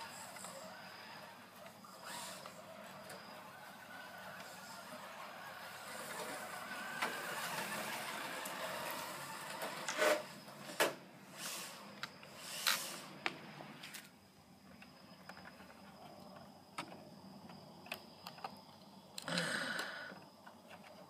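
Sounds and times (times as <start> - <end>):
electric rc car motor whining: 0.0 - 10.6.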